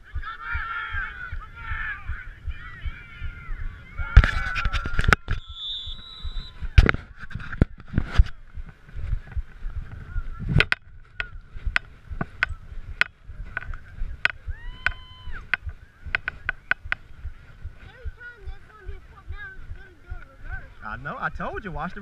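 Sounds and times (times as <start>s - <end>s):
low rumble: 0.0s - 20.8s
camera jostling clicks and knocks: 4.2s - 5.5s, 6.8s - 8.4s, 10.6s - 14.4s.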